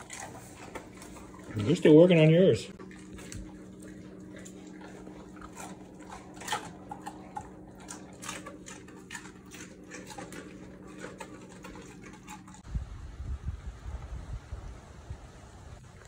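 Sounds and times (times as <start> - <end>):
dog chewing and licking: 0.0 - 12.7
steady low hum: 0.0 - 16.0.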